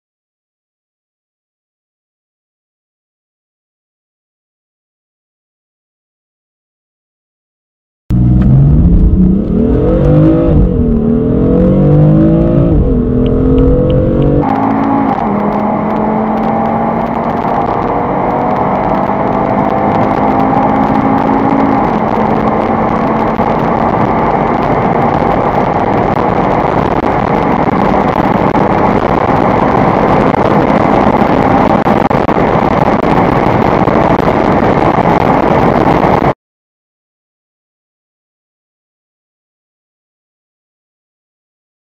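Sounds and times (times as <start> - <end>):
car engine accelerating: 8.1 - 36.4
wind and road noise: 8.1 - 36.4.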